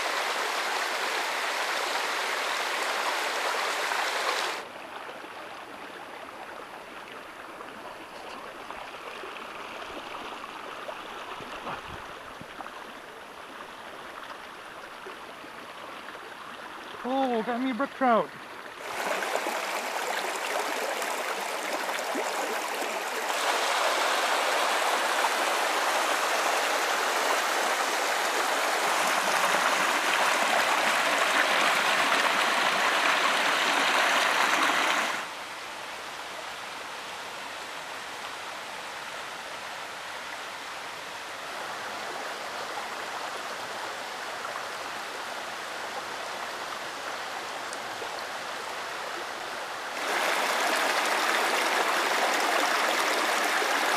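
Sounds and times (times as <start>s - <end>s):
creek running over stones: 0.0s - 53.9s.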